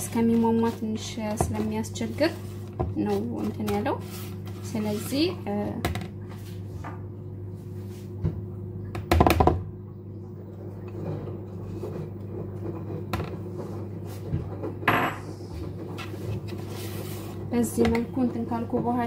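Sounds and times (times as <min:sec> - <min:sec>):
spatula scraping dough in bowl: 0:00.0 - 0:05.6.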